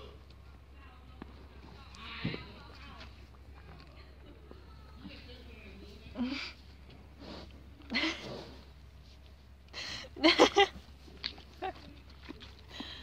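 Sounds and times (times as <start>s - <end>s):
horse sniffing and blowing: 7.0s - 9.0s
girl laughing: 10.2s - 10.8s.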